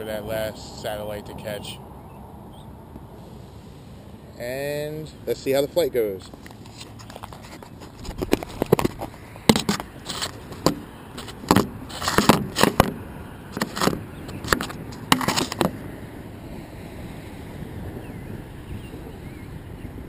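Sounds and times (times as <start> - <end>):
wind noise: 6.2 - 20.0
camera handling knocks and clicks: 6.4 - 15.8.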